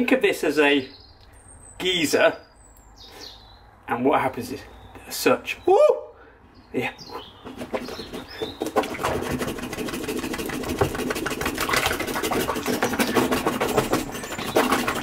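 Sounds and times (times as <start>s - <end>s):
soapy water bubbling and splashing: 7.7s - 15.0s.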